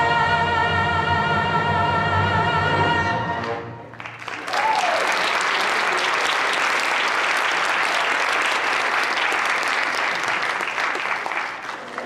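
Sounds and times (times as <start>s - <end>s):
audience applauding: 3.9s - 12.0s.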